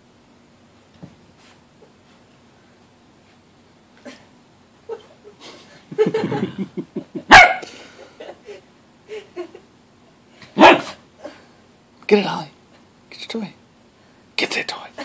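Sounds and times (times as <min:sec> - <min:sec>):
dog barking: 0:07.3 - 0:07.6, 0:10.6 - 0:11.0.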